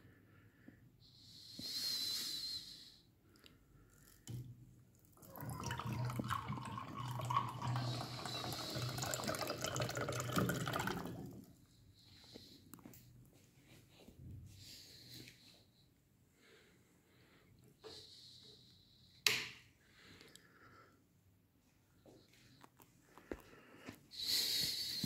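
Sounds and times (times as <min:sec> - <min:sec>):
drink pouring into a glass: 0:05.2 - 0:11.5.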